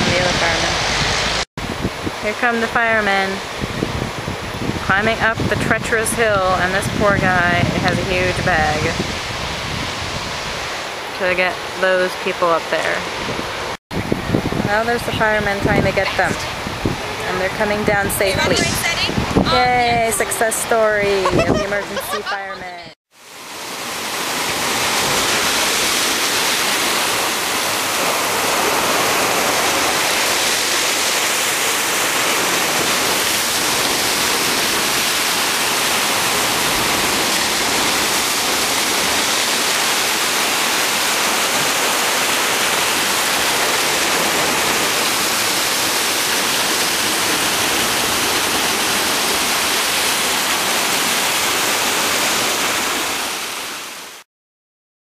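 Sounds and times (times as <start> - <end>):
surf breaking over rocks: 14.0 - 53.8.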